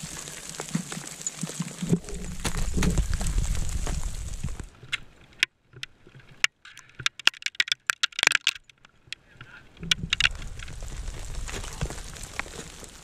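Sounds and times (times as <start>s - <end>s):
wind rumbling on microphone: 1.8s - 5.0s, 9.3s - 13.0s.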